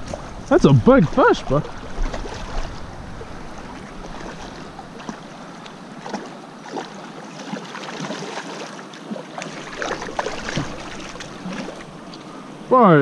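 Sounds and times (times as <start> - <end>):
stream rippling over stones: 0.0 - 13.0
fish splashing at surface: 6.0 - 11.9.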